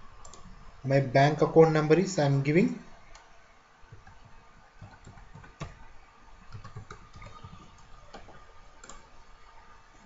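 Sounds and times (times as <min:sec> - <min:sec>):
typing on keyboard: 0:04.8 - 0:05.8, 0:06.5 - 0:09.0.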